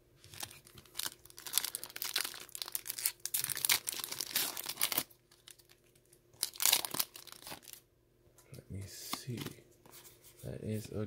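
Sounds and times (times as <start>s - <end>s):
foil wrapper crinkling: 0.3s - 7.8s
foil wrapper tearing: 0.4s - 7.8s.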